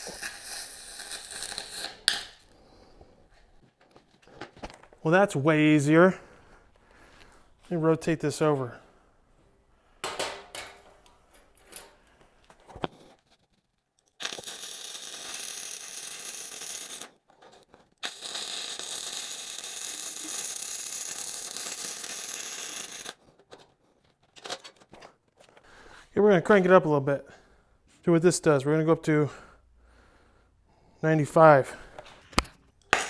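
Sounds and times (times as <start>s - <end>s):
welding arc: 0.0s - 2.3s, 14.2s - 17.2s, 18.0s - 23.2s.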